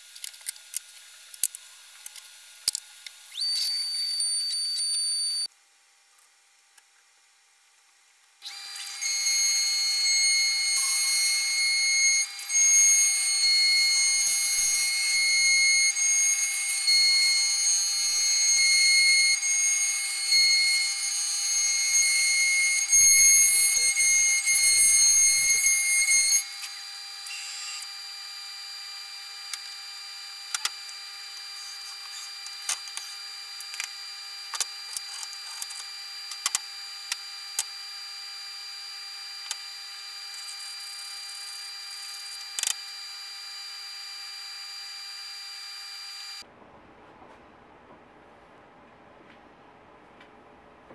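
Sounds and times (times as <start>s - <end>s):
router spindle whining while cutting: 8.4s - 35.4s
quiet steady hum: 46.4s - 50.9s.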